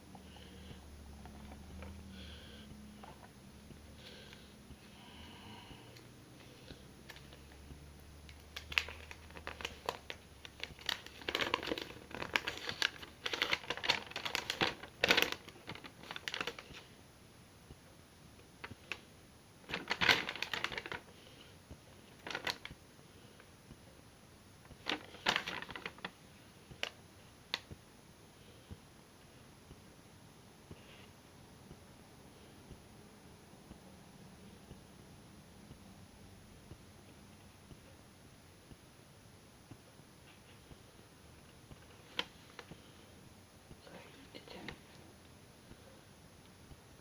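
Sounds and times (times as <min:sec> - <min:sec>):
paper leaflet rustling: 0:08.6 - 0:16.9, 0:19.7 - 0:21.0, 0:24.8 - 0:26.1.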